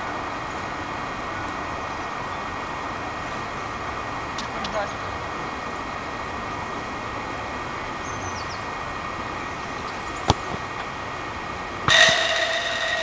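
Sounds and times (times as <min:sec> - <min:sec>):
outdoor background hum: 0:00.0 - 0:13.0
football kick thud: 0:10.3 - 0:10.8
high-pitched whine with hiss: 0:11.9 - 0:13.0.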